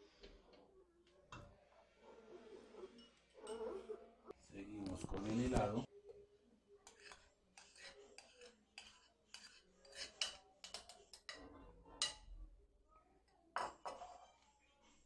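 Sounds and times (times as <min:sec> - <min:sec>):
kitchen utensils and dishes clinking: 0:02.7 - 0:04.0, 0:06.8 - 0:12.4, 0:13.6 - 0:14.5.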